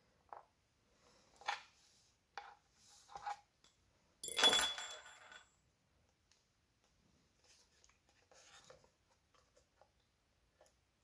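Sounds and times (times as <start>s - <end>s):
metal clatter with ring: 4.2s - 5.6s
soft clicks and scrapes: 6.3s - 10.0s.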